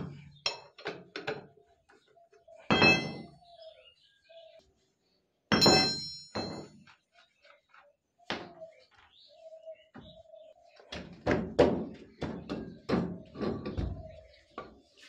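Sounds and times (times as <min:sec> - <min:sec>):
metal clink ringing: 0:02.7 - 0:03.3, 0:05.5 - 0:06.7.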